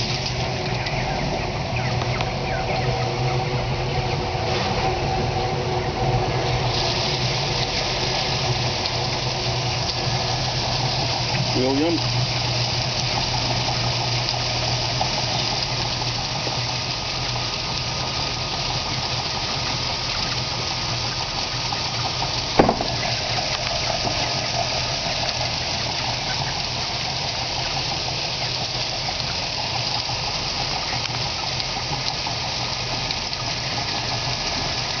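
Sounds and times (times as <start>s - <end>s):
feed pouring into hopper: 4.4s - 35.0s
sharp knock: 22.6s - 23.1s.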